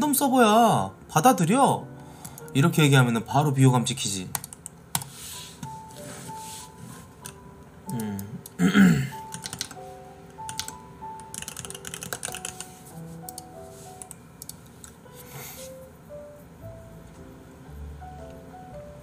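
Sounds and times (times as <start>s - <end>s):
soft background music: 0.0s - 19.0s
computer keyboard typing: 4.3s - 5.1s, 9.2s - 14.6s.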